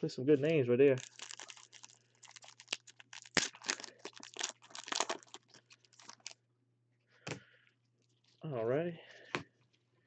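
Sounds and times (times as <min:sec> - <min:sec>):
foil wrapper tearing and crinkling: 0:00.9 - 0:06.4.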